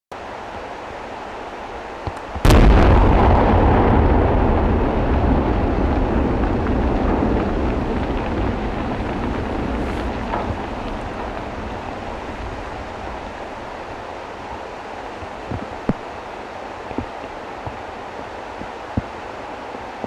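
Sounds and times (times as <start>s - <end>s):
sharp explosion: 2.4s - 13.2s
deep rumble: 2.4s - 15.9s.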